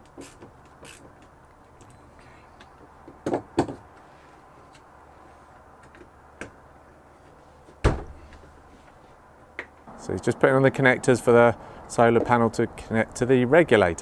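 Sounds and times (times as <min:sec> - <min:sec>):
knocks and clunks of handling: 0:02.6 - 0:04.1
heavy thump: 0:07.8 - 0:08.2.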